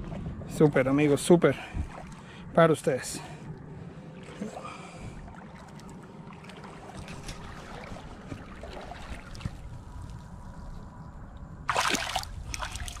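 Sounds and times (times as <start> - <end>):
steady low rumble: 0.0 - 13.0
fish splashing in water: 4.2 - 9.8, 11.7 - 13.0.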